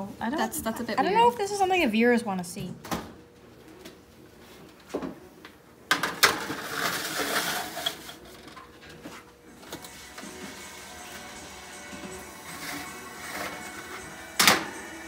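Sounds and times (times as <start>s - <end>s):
pan scraping along rack: 6.4s - 8.4s, 9.8s - 15.0s.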